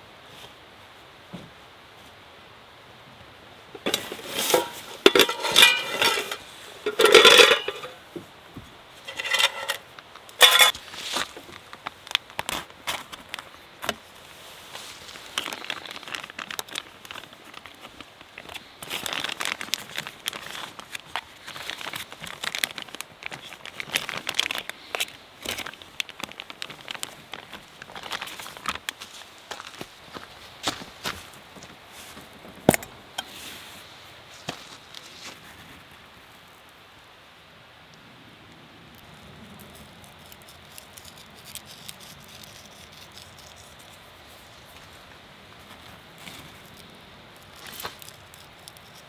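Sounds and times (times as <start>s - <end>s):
objects clinking and clattering: 3.8s - 8.0s, 9.1s - 9.8s, 10.4s - 10.8s.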